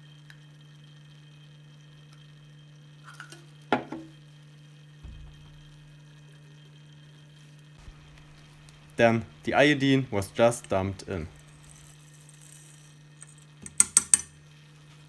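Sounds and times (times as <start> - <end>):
steady low hum: 4.9 - 15.0
sharp knock: 5.0 - 6.0.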